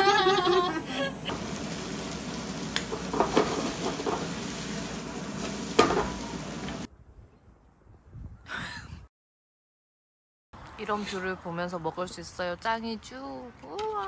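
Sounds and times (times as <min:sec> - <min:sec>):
dishes clinking: 0:05.8 - 0:06.4.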